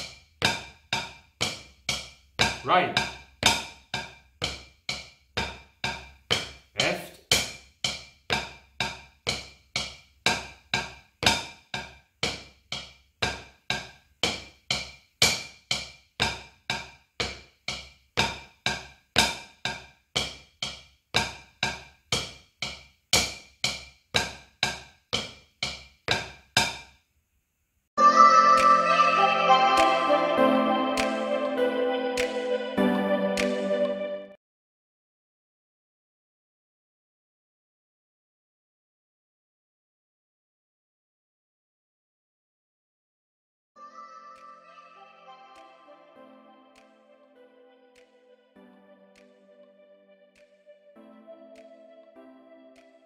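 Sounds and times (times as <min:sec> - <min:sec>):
drumsticks on practice pad: 0:00.0 - 0:27.0.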